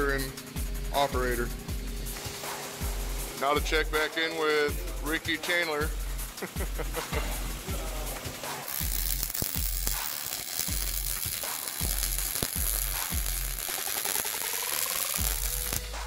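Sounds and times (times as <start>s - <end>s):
welder arc crackling: 6.3s - 16.0s.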